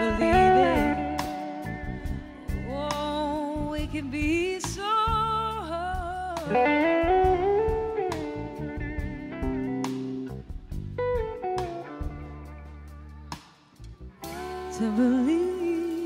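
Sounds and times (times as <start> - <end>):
strummed electric rhythm guitar: 0.0 - 3.0, 6.4 - 15.1
electric slide guitar lead: 0.0 - 3.8, 6.2 - 13.5, 14.1 - 16.0
bass: 0.0 - 16.0
drums: 0.0 - 16.0.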